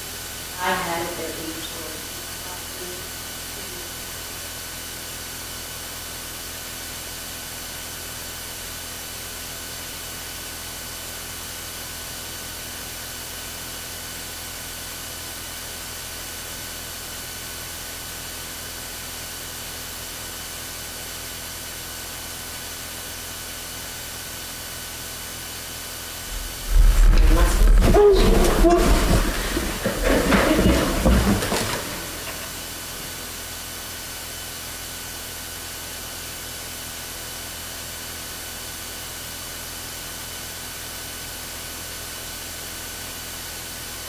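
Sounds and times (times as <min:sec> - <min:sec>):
faint electrical hum: 0:26.2 - 0:34.1.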